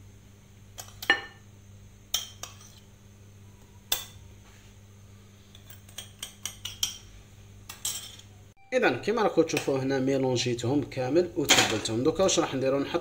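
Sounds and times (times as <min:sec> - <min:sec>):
metal spoon clinking on ceramic bowl: 0:07.7 - 0:08.3.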